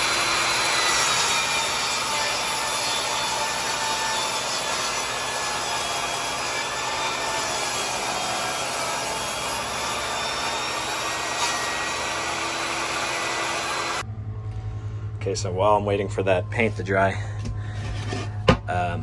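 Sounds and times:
table saw cutting wood: 0.0 - 14.0.

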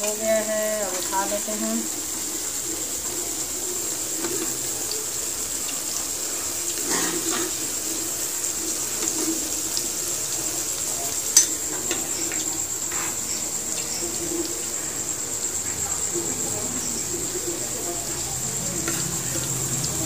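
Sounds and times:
cheese frying in oil: 0.0 - 20.0.

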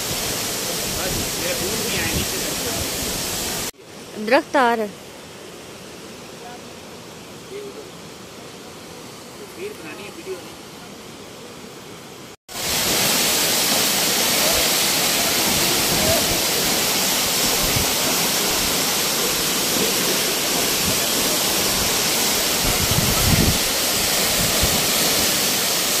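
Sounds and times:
waterfall crashing: 0.0 - 3.7, 12.5 - 26.0.

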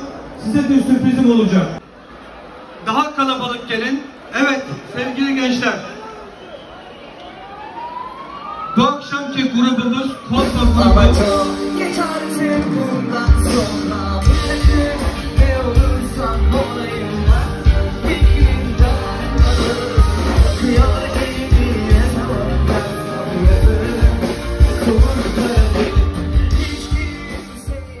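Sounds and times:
rock band playing live: 10.2 - 28.0
bass guitar: 10.4 - 28.0
drum kit: 10.4 - 28.0
person singing: 10.4 - 28.0.

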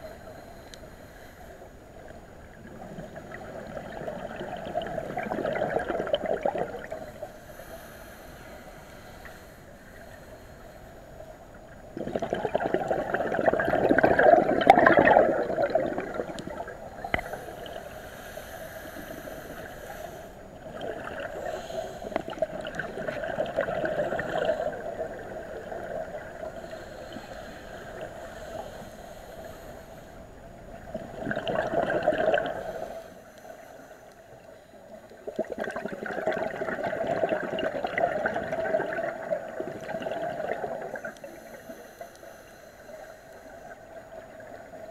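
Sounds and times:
underwater regulator bubbling: 2.9 - 7.1, 12.0 - 17.9, 30.8 - 32.6, 35.3 - 41.3.

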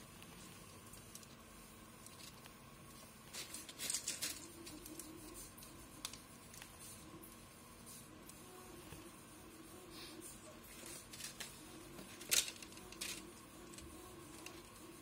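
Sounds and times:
plastic tape rustling: 2.0 - 6.8, 10.6 - 15.0.

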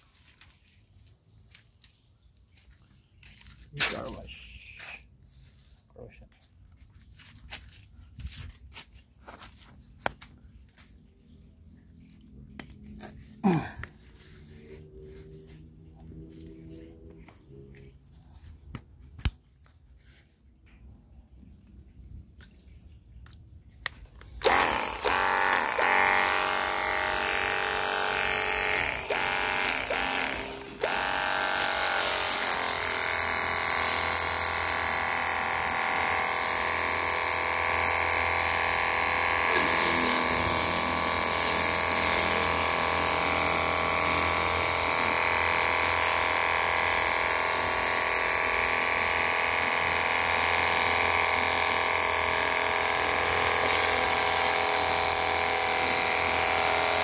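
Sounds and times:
pressure washer motor whine: 24.2 - 57.0
water jet hissing: 39.0 - 57.0.

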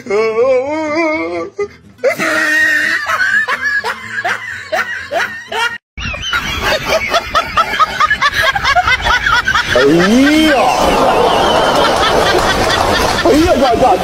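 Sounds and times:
wavering vocal cry: 0.0 - 5.4
person laughing: 2.1 - 10.7.

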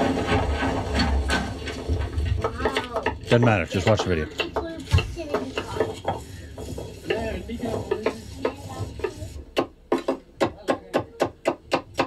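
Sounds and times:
knife chopping on cutting board: 4.0 - 12.0.

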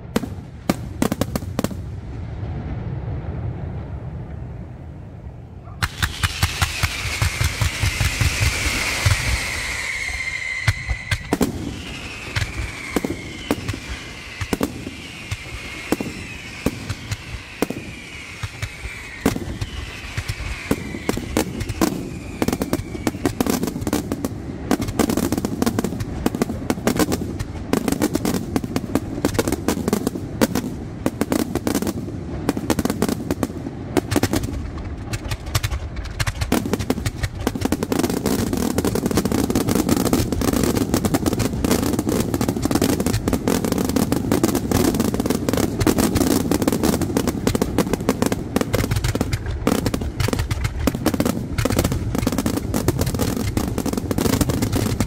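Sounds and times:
firework whistles: 5.7 - 28.4, 34.0 - 55.0
firework crackle: 5.7 - 55.0
firework shells bursting: 5.8 - 24.2, 34.0 - 55.0.

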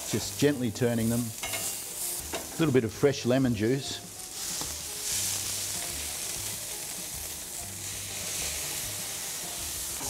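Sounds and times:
fish sizzling on a grill: 0.0 - 10.0.

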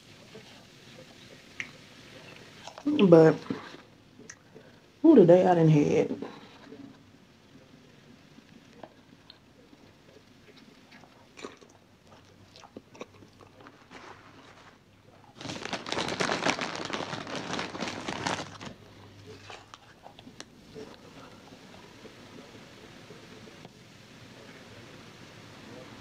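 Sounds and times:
soft chewing: 0.2 - 5.0, 6.2 - 15.5, 17.1 - 23.7
loud crunching: 13.0 - 18.8.

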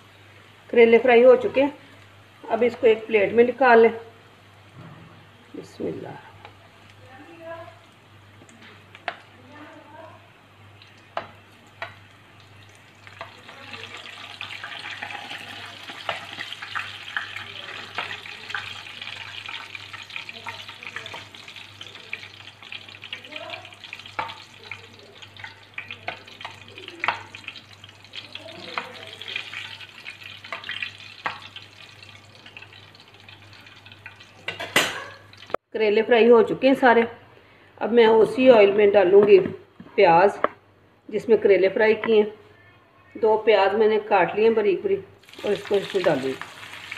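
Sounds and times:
oil sizzling and crackling: 1.4 - 35.6, 45.2 - 46.9.

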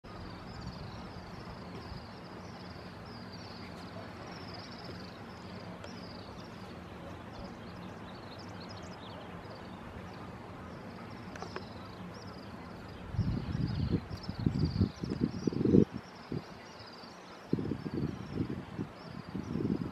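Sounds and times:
low hum and hiss: 0.1 - 19.9.

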